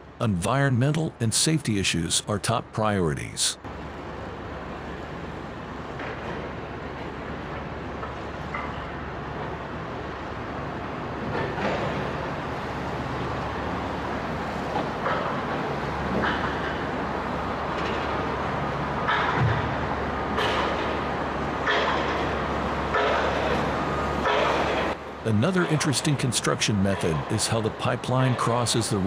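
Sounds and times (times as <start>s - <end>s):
machinery knocks and clanks: 19.0s - 25.0s.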